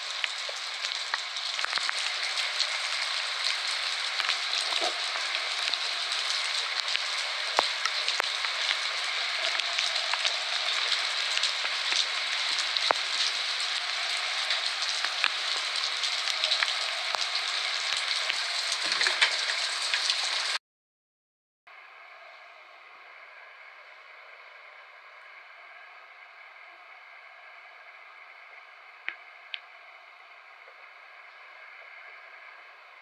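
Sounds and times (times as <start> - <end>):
raindrops ticking close by: 0.0 - 20.6, 29.0 - 29.7
steady rain: 0.0 - 20.6, 22.0 - 33.0.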